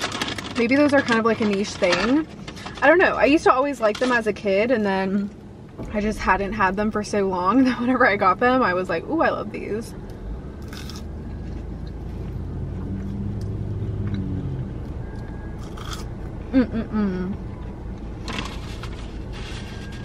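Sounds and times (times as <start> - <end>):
vehicle rumble inside car: 0.2 - 20.0
person murmuring: 16.5 - 17.4.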